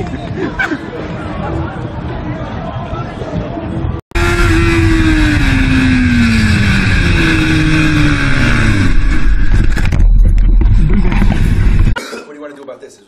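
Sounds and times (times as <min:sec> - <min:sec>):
heavy wind noise: 0:00.0 - 0:12.0
heavy low rumble: 0:03.3 - 0:12.0
motorcycle engine slowing: 0:04.1 - 0:12.0.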